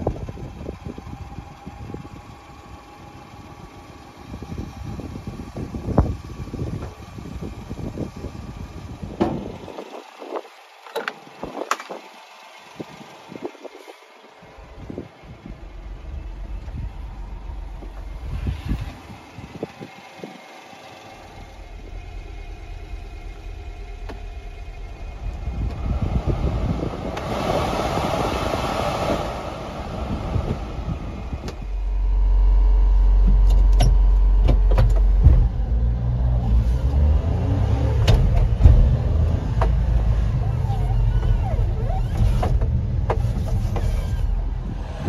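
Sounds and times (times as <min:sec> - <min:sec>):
heater blower fan: 0:00.0 - 0:45.0
truck engine driving: 0:00.0 - 0:45.0
sharp clicks and knocks: 0:33.2 - 0:35.8, 0:38.0 - 0:39.9.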